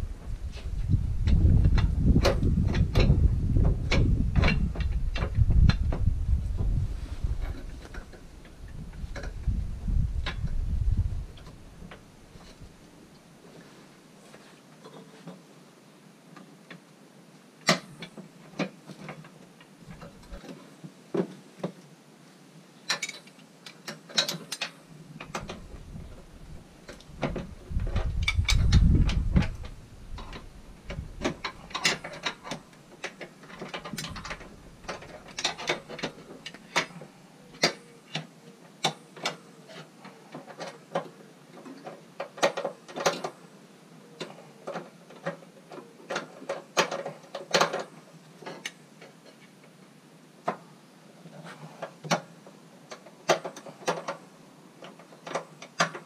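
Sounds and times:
low rumble: 0:00.0 - 0:08.0, 0:08.6 - 0:11.8.

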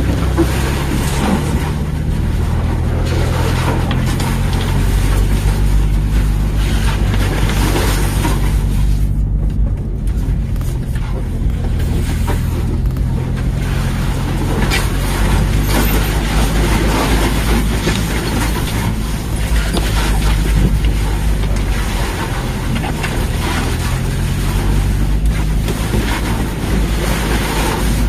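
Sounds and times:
car engine running: 0:00.0 - 0:28.0
tyre and body noise: 0:00.0 - 0:28.0.

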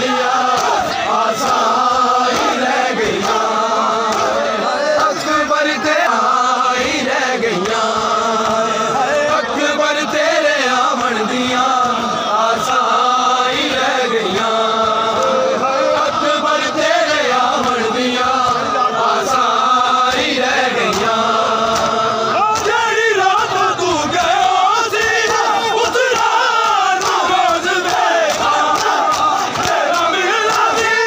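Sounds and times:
men chanting a lament: 0:00.0 - 0:31.0.

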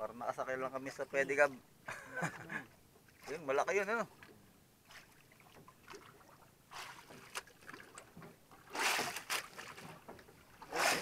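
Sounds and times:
water splashing against boat hull: 0:02.4 - 0:11.0.

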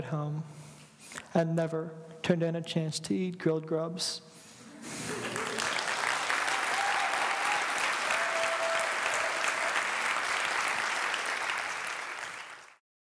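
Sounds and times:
audience applauding: 0:04.9 - 0:12.8.

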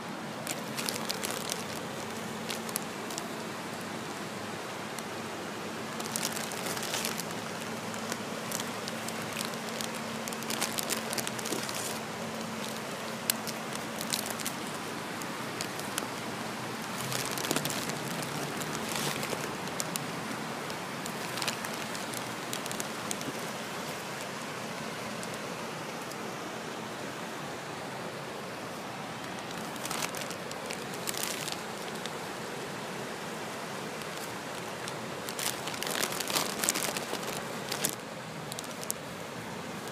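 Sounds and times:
light rain: 0:00.0 - 0:39.9
running floodwater: 0:00.0 - 0:39.9
small ticks and crackles: 0:00.4 - 0:26.3, 0:29.2 - 0:32.5, 0:33.7 - 0:39.1.

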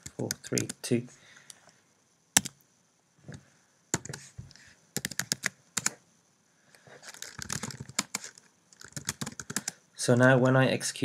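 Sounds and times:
keyboard typing clicks: 0:00.0 - 0:00.8, 0:02.4 - 0:02.6, 0:05.0 - 0:06.0, 0:07.2 - 0:09.8.

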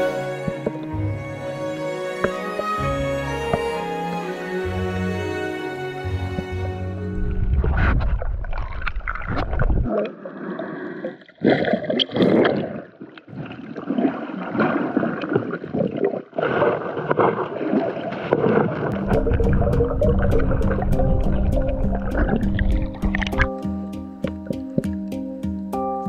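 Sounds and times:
background music: 0:00.0 - 0:07.6, 0:19.0 - 0:26.0
water sloshing underwater: 0:06.3 - 0:23.6.

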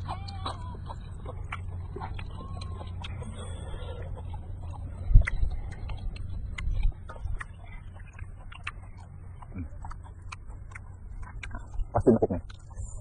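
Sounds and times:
chewing and lip-smacking: 0:00.0 - 0:13.0.

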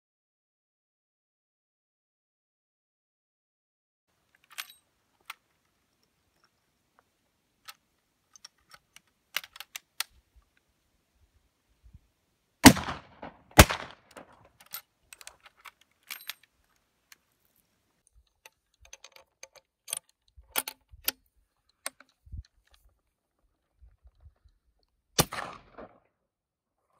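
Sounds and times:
metallic clicks of rifle breech: 0:04.3 - 0:06.6, 0:07.6 - 0:10.6, 0:13.8 - 0:23.0
gunshots with ringing echo: 0:12.6 - 0:14.3, 0:25.2 - 0:25.9.

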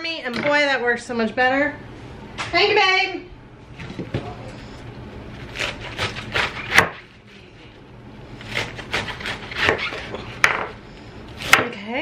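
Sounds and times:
knife chopping lettuce: 0:05.4 - 0:07.2, 0:08.4 - 0:10.8.

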